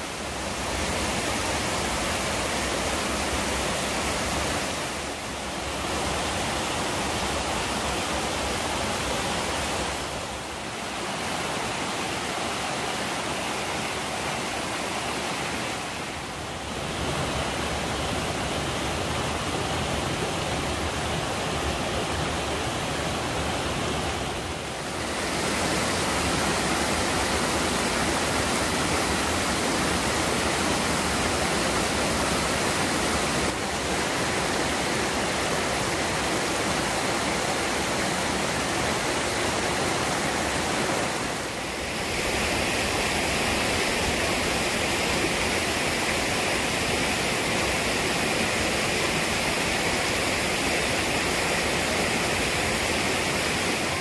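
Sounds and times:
stream rushing over boulders: 0.0 - 54.0.

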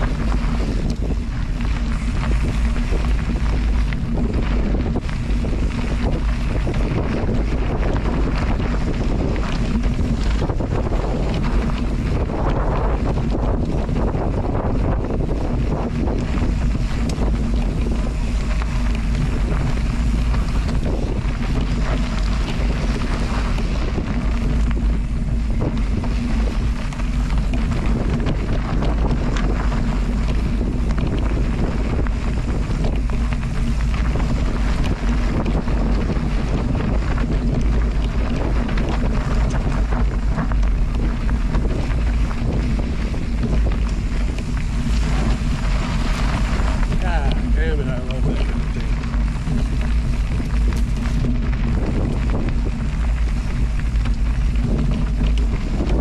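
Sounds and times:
wind buffeting microphone: 0.0 - 56.0
loud rushing air: 44.1 - 51.1.

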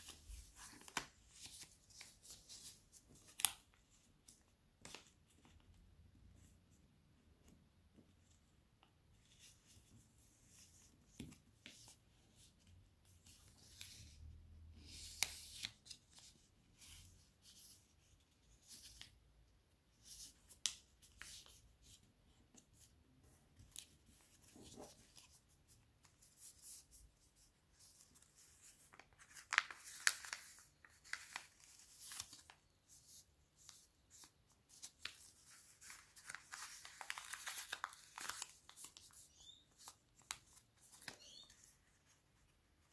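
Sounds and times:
paper rustling and crinkling: 0.0 - 5.7, 23.5 - 42.9.

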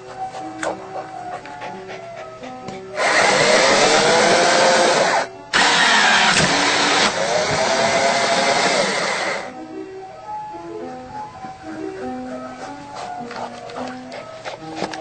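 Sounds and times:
small motor running loudly: 3.0 - 9.5.

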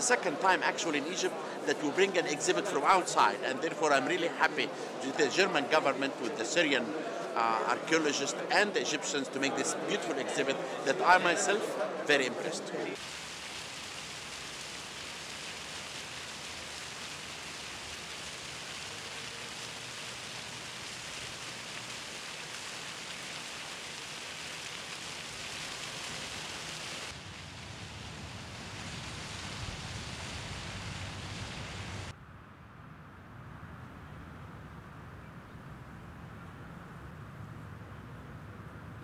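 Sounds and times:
hiss-like background ambience: 12.9 - 32.1.

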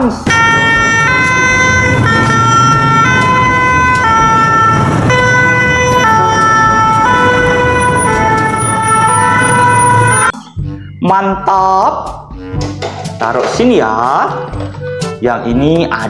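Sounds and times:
road noise: 0.0 - 10.4
loud two-tone siren: 0.3 - 10.4.

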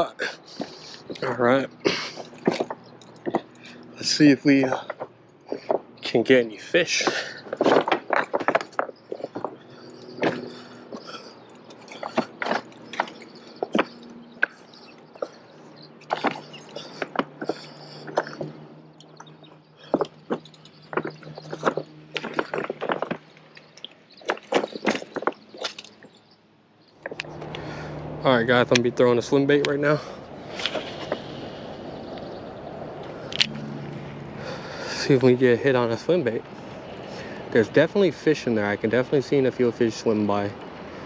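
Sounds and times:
stones crunching underfoot: 6.8 - 18.6, 19.2 - 26.2
bike knocking on rocks: 19.8 - 23.6.

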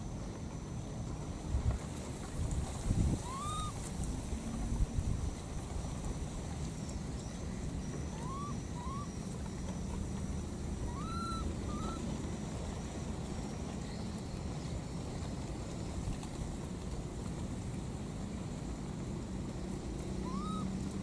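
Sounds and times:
whistle-like animal calls: 3.2 - 3.8, 7.8 - 12.1, 20.2 - 20.8
thin high steady tone: 3.2 - 15.1.

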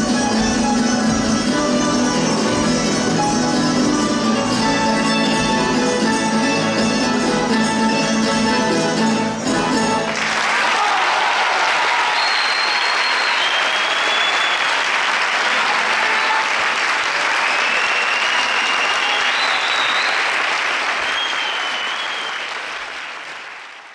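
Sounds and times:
audience applause: 10.0 - 23.9.

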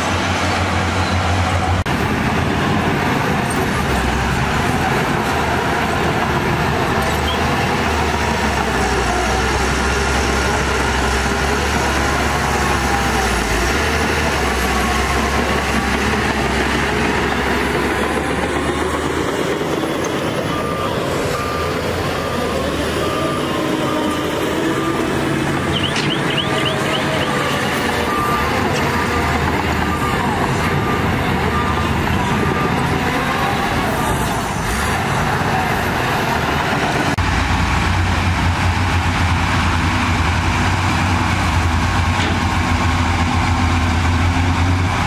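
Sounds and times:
heavy diesel machinery running: 0.0 - 45.0
reversing alarm beeping: 7.0 - 34.4.

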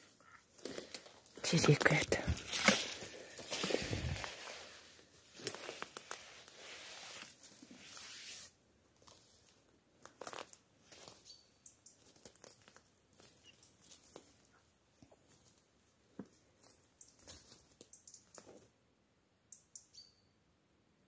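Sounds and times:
footsteps through twigs and leaves: 0.3 - 15.6, 17.0 - 18.7
twigs snapping: 0.6 - 4.3, 10.0 - 11.0
distant bird chirps: 11.2 - 12.0, 19.5 - 20.4.

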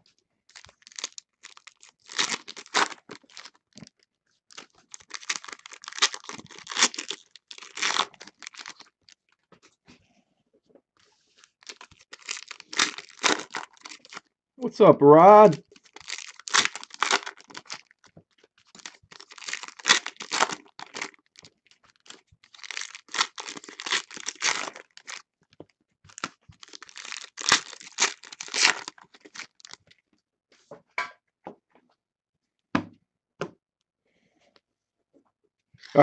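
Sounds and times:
foil wrappers crinkling: 0.5 - 9.4, 11.2 - 14.2, 15.4 - 25.2, 26.1 - 29.8.

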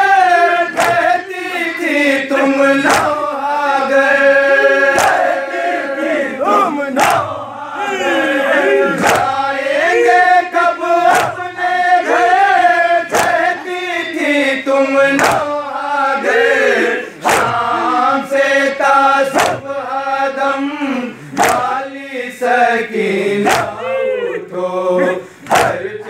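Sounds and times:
men chanting in chorus: 0.0 - 26.0
chest-beating slaps: 0.7 - 1.2, 2.8 - 3.2, 4.9 - 5.3, 7.0 - 7.4, 9.0 - 9.4, 11.1 - 11.5, 13.1 - 13.8, 15.2 - 15.5, 17.2 - 17.7, 19.3 - 19.7, 21.3 - 21.8, 23.4 - 23.8, 25.4 - 25.9.

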